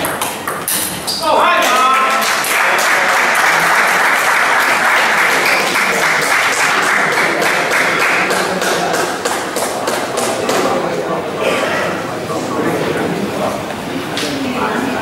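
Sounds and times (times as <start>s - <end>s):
crowd applauding: 1.4s - 10.9s.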